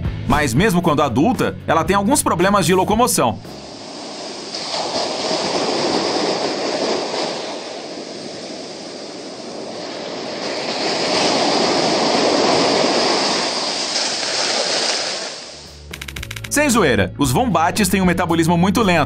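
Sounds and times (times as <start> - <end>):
ocean surf washing up: 3.5 - 15.7.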